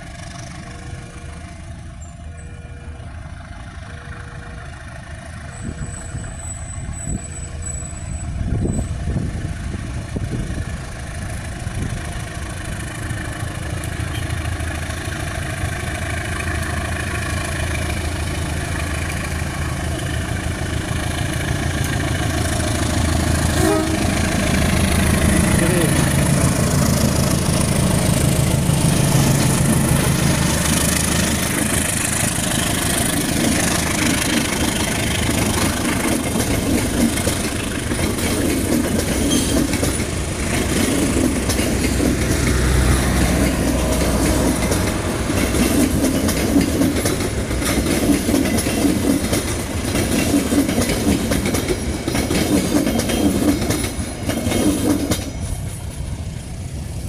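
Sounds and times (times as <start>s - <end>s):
diesel locomotive engine passing: 0.0s - 57.0s
train wheels clattering over rail joints: 5.5s - 56.8s.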